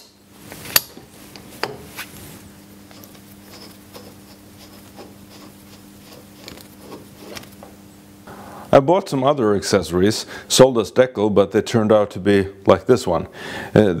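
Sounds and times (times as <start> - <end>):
steady low hum: 0.0 - 14.0
light rubbing: 1.8 - 7.8.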